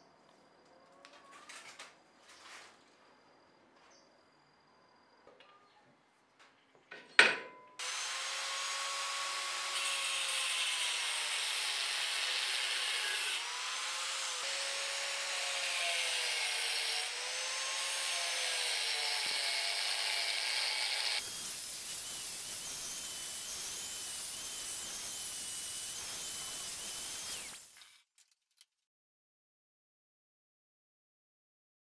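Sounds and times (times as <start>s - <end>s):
angle grinder cutting steel: 7.8s - 28.0s.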